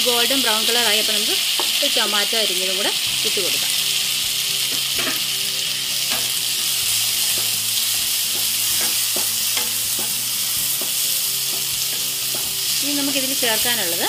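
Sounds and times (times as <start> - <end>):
onions sizzling in hot oil: 0.0 - 14.0.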